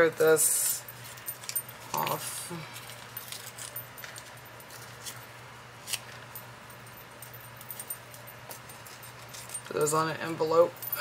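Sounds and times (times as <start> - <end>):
low steady hum: 0.0 - 11.0
paper pieces tapping and rustling: 1.1 - 5.2.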